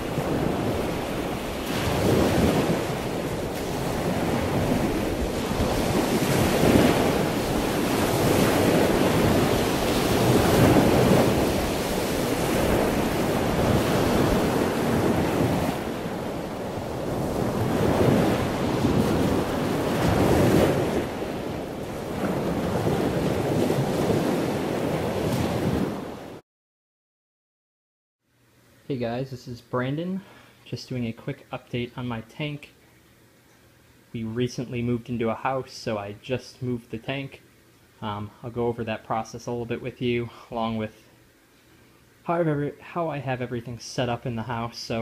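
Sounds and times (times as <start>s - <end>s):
rushing surf-like noise: 0.0s - 26.4s.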